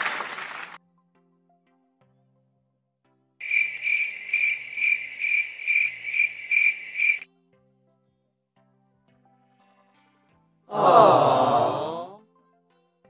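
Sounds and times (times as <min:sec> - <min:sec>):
cricket chirping: 0:03.4 - 0:07.2.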